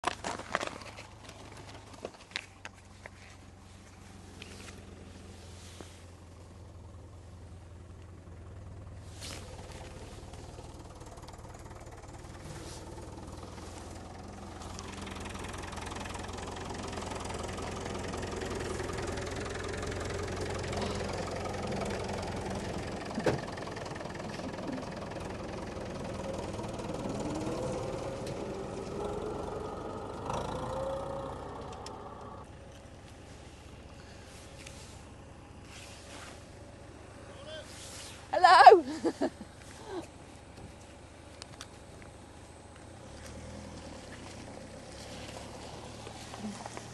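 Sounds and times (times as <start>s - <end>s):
diesel tractor engine running: 1.1s - 46.9s.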